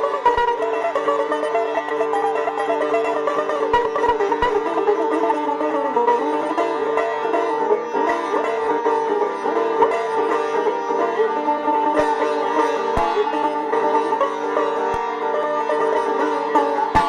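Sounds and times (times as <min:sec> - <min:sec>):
sitar drone strings ringing: 0:00.0 - 0:17.0
sitar melody with pitch bends: 0:00.0 - 0:17.0.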